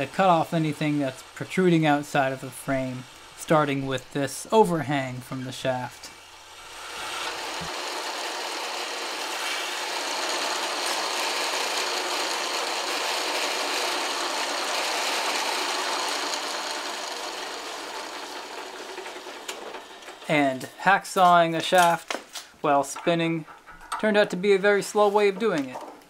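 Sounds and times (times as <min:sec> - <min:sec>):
hacksaw grinding on spinning shaft: 0:00.0 - 0:20.7.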